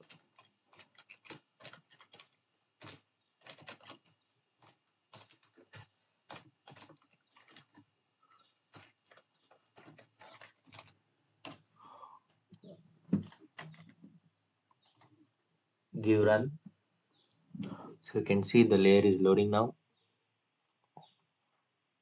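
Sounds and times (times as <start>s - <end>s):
faint keyboard typing: 0.0s - 15.2s, 20.5s - 21.2s.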